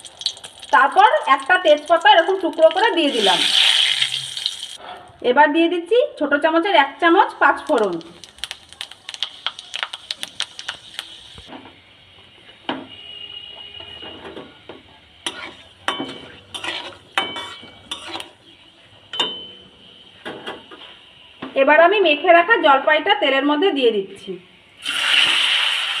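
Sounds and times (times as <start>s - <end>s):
seeds spluttering in hot oil: 0.0s - 4.8s, 7.3s - 11.5s, 24.8s - 26.0s
spatula scraping a pan: 15.2s - 18.4s.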